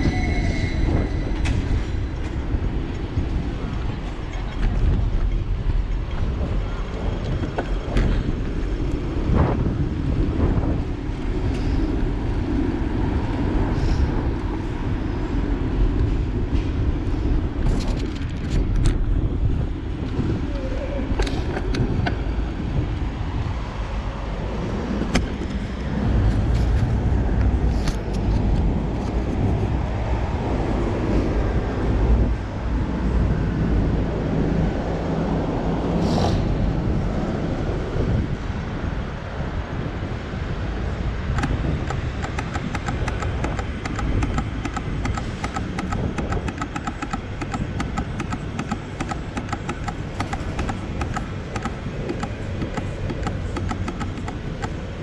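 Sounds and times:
car engines and road noise: 0.0 - 55.0
regular ticking: 41.4 - 54.9.

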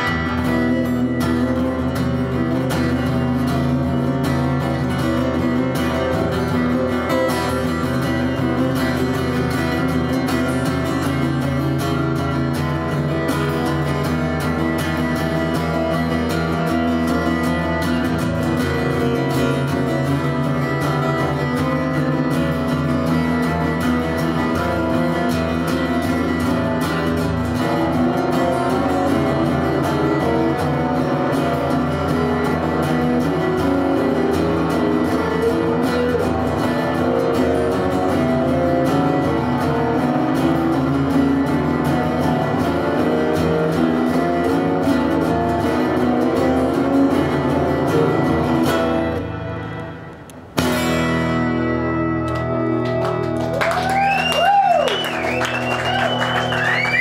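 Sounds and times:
acoustic guitar chords: 0.0 - 57.0.

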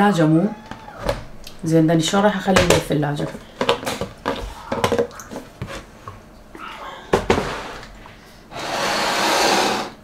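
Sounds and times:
plastic lids and containers knocking: 2.5 - 6.2, 7.1 - 7.6.

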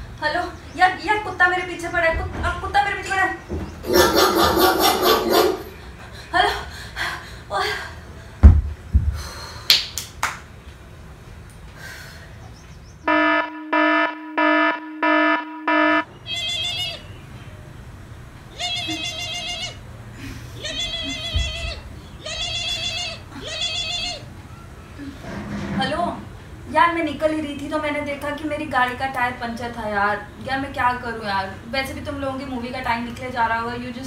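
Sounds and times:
thump: 8.4 - 9.2.

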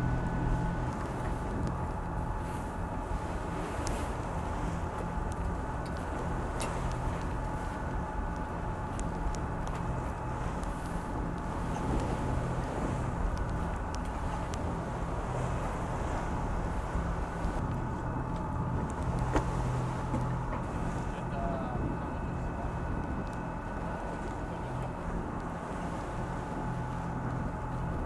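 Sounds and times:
wind noise: 0.0 - 24.2
diesel engine drone: 0.0 - 28.0
faint clicks: 5.0 - 7.6, 8.3 - 12.1, 13.3 - 14.6, 23.0 - 23.4.

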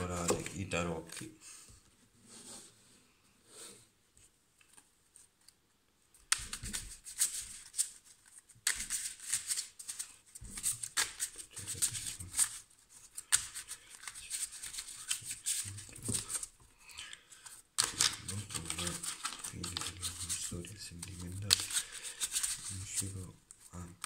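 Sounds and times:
cards being shuffled: 0.0 - 1.3, 6.2 - 16.6, 17.4 - 24.0.

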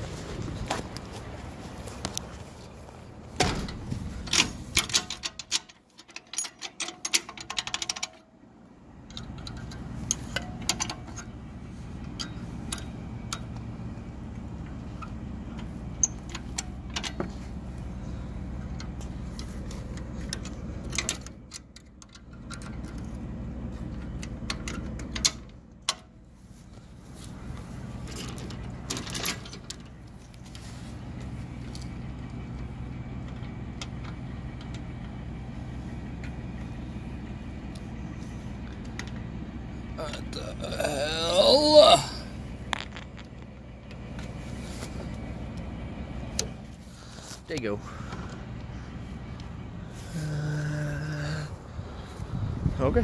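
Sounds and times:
metal clinks and rattles: 3.6 - 8.3, 27.6 - 30.9
steady low hum: 7.0 - 53.0.

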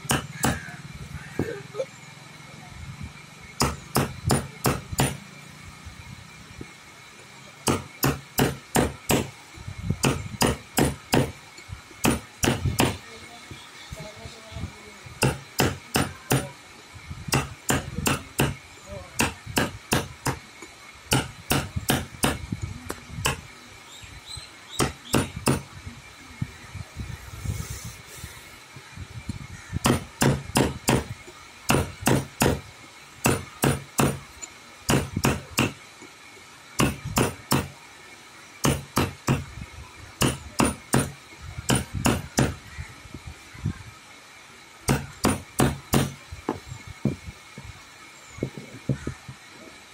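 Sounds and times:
hammer strikes: 0.0 - 0.6, 3.6 - 5.2, 7.6 - 9.3, 10.0 - 11.4, 12.0 - 13.0, 15.2 - 16.5, 17.3 - 18.6, 19.2 - 20.4, 21.1 - 22.4, 23.2 - 23.4, 24.8 - 25.7, 29.8 - 31.1, 31.7 - 32.6, 33.2 - 34.3, 34.9 - 35.8, 36.8 - 37.7, 38.6 - 39.5, 40.2 - 42.6, 44.9 - 47.2.

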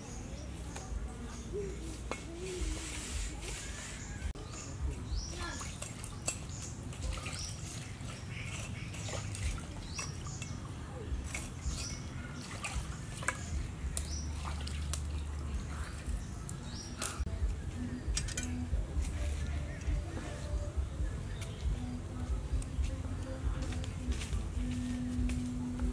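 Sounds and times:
birds chirping: 0.0 - 25.9
cleaver scraping charcoal: 1.9 - 9.2, 9.9 - 14.2.

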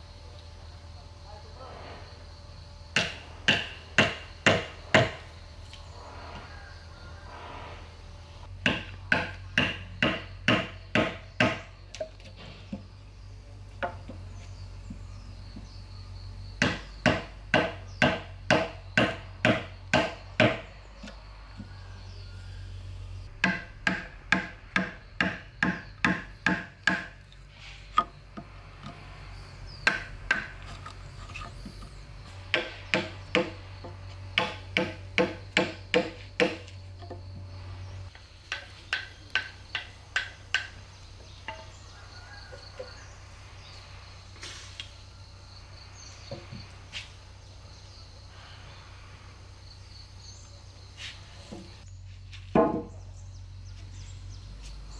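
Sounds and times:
hammer striking metal: 23.4 - 27.1.

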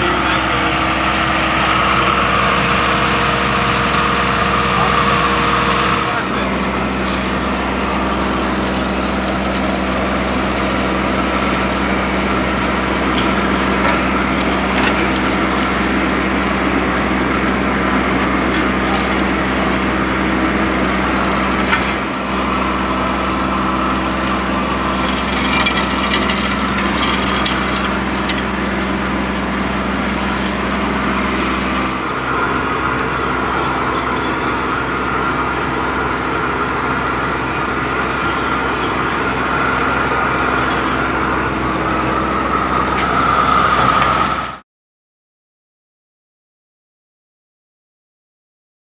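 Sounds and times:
engine idling: 0.0 - 44.6.

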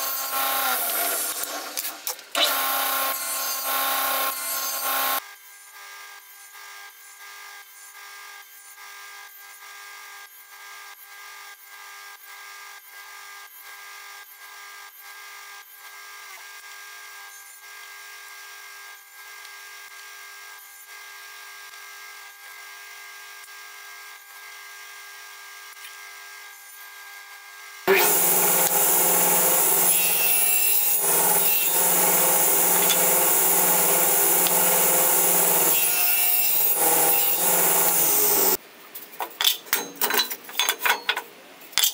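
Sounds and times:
table saw running: 0.0 - 5.2, 27.9 - 38.6.

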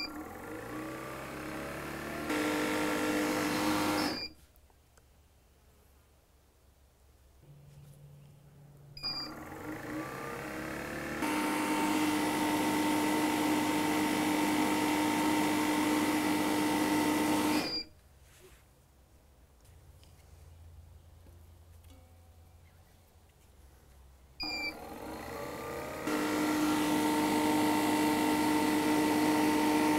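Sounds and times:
machine motor whining: 0.0 - 4.4, 9.0 - 17.9, 24.4 - 29.9
short beep: 9.0 - 9.4.

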